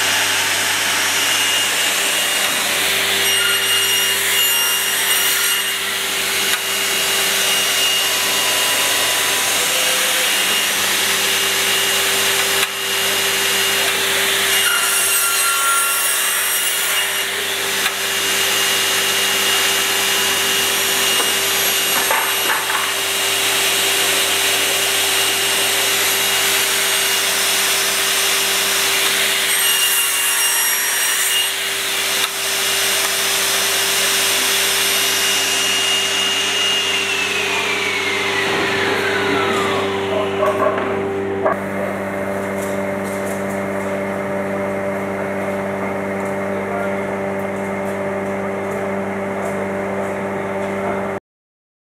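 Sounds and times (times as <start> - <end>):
saw blade cutting wood: 0.0 - 44.7
steady saw motor tone: 0.0 - 51.0.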